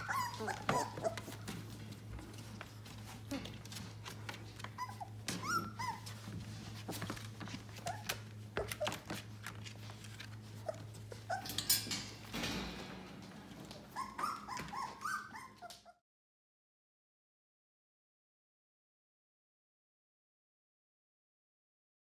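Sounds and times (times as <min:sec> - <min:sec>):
shuffling and rustling: 0:00.0 - 0:11.4
puppies whimpering and squealing: 0:00.0 - 0:12.3, 0:13.4 - 0:16.0.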